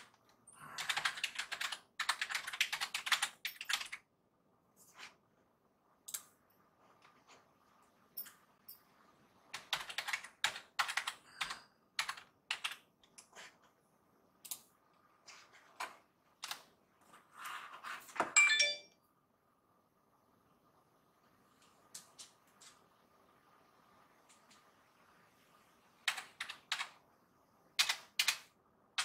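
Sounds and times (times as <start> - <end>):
computer keyboard typing: 0.0 - 4.1, 9.5 - 13.5, 15.8 - 16.8, 26.0 - 27.0, 27.8 - 29.0.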